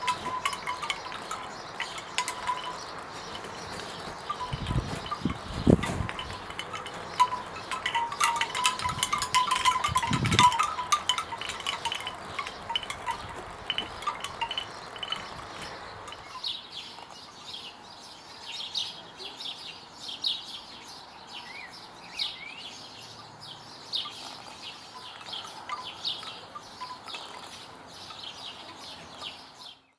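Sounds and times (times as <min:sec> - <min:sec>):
bamboo wind chime knocking: 0:00.0 - 0:03.6, 0:04.2 - 0:16.4
birds chirping: 0:00.0 - 0:29.9.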